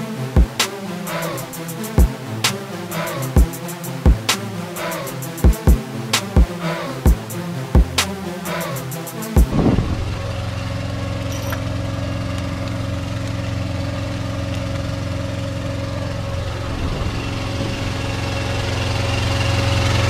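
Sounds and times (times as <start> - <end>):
vehicle engine idling: 6.6 - 20.0.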